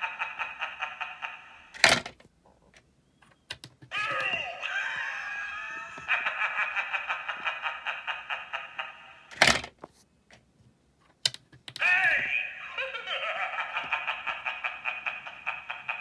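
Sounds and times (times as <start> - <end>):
cackling laughter from small speaker: 0.0 - 1.7, 4.0 - 9.3, 12.5 - 16.0.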